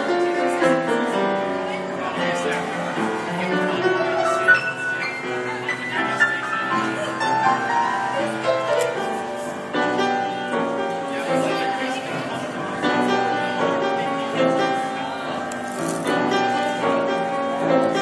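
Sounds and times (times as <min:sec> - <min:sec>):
grand piano improvising: 0:00.0 - 0:18.0.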